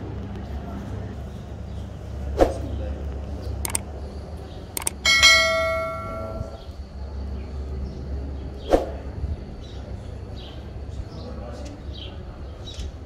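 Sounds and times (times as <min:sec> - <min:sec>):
mouse clicks: 0:04.8 - 0:05.0
notification bell ding: 0:04.9 - 0:06.6.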